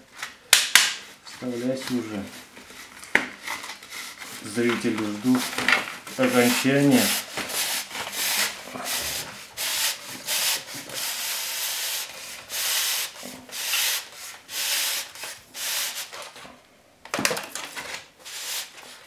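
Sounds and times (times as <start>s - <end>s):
plastic scraping against metal: 1.6s - 9.4s.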